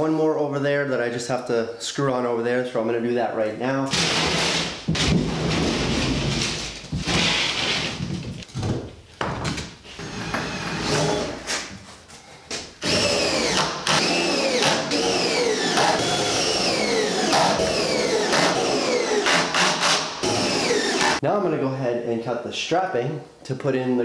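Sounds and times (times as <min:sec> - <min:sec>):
cordless drill driving screws: 0:12.8 - 0:21.2.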